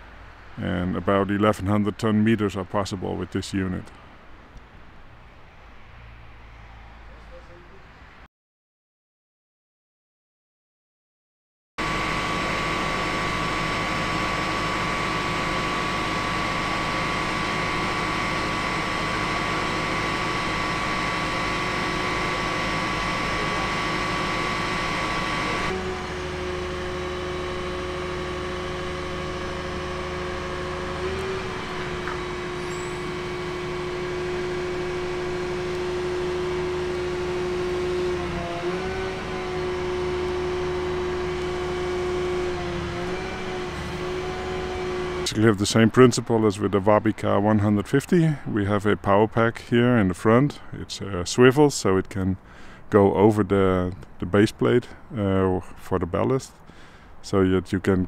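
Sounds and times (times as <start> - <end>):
hydraulic power pack humming: 11.8 - 49.0.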